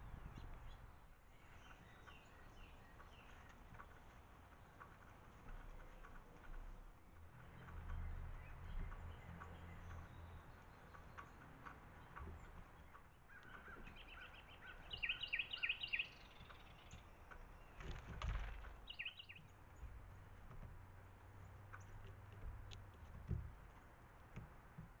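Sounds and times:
faint bird chirps: 0:12.4 - 0:17.9, 0:18.8 - 0:19.6
songbird whistling falling notes: 0:14.0 - 0:16.9, 0:18.8 - 0:19.4.

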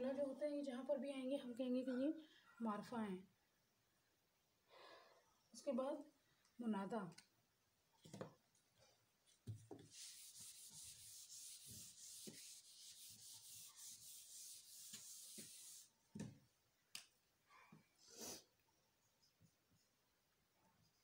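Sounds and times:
eraser rubbing on whiteboard: 0:09.8 - 0:16.0.

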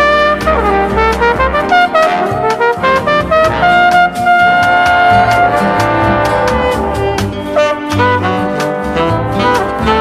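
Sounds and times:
light music band with brass: 0:00.0 - 0:10.0
brass lead long note: 0:03.1 - 0:09.1.

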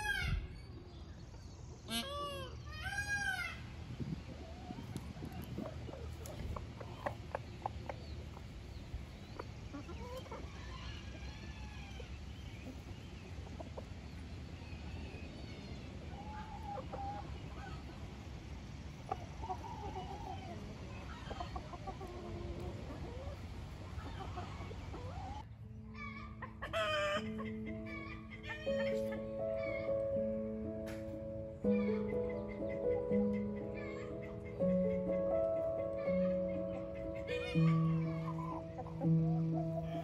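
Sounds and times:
chickens clucking: 0:00.0 - 0:40.0
steady low background noise: 0:00.0 - 0:40.0
music: 0:25.5 - 0:40.0.

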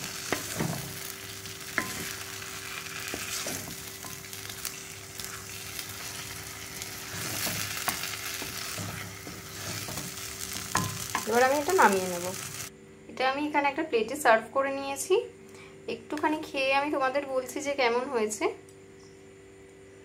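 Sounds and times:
spatula scraping pan: 0:00.0 - 0:11.3
halwa sizzling in pan: 0:00.0 - 0:12.7.

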